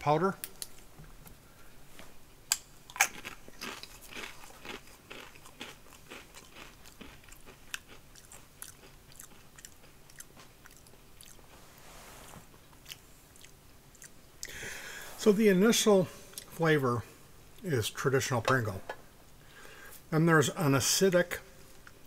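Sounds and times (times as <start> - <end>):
potato crisp crunching: 2.8 - 11.5
crunchy chewing: 2.9 - 11.6, 12.7 - 14.6.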